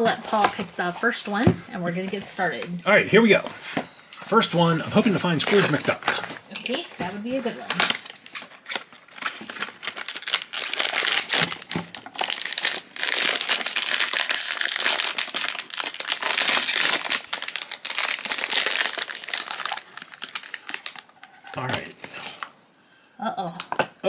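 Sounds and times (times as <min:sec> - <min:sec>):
foil pouch tearing and crinkling: 0:05.2 - 0:06.2, 0:07.4 - 0:22.5.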